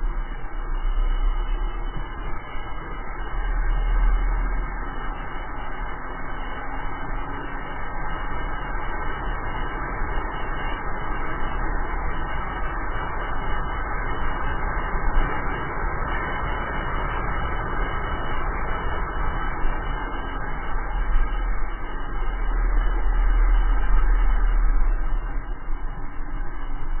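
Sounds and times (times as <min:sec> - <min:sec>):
wheels rumbling on asphalt: 0:09.6 - 0:27.0.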